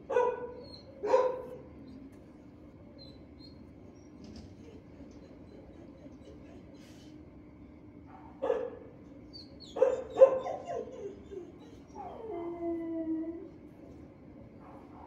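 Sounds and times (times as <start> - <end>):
dog barking: 0.1 - 1.7, 8.1 - 8.9, 9.7 - 10.9, 14.6 - 15.0
dog crying: 9.3 - 13.5.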